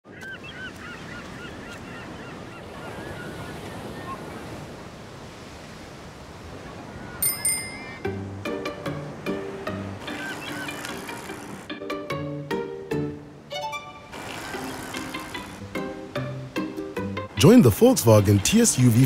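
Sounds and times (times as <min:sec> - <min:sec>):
gulls calling: 0:00.0 - 0:04.8, 0:06.4 - 0:11.7, 0:13.5 - 0:19.0
ocean surf washing onto beach: 0:00.4 - 0:11.7, 0:14.1 - 0:16.7, 0:17.3 - 0:19.0
bicycle bell ringing: 0:07.2 - 0:08.0
plucked-string music: 0:07.2 - 0:18.8.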